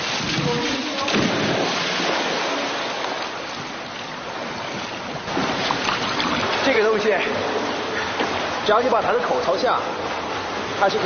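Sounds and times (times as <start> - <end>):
person splashing into pool: 0.0 - 3.2
pool water churning: 0.0 - 11.0.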